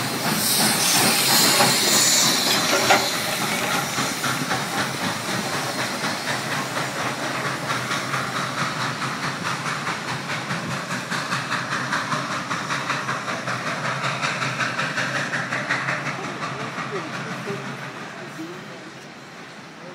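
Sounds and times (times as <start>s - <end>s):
steam hissing: 0.0s - 19.9s
steam locomotive chuffing: 0.0s - 19.9s.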